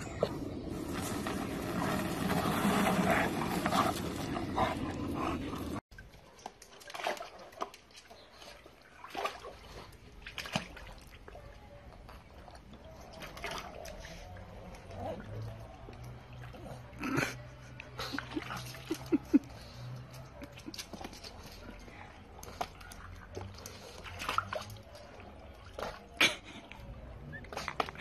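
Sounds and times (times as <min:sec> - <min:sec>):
dog splashing in water: 0:06.0 - 0:11.4, 0:18.2 - 0:26.2.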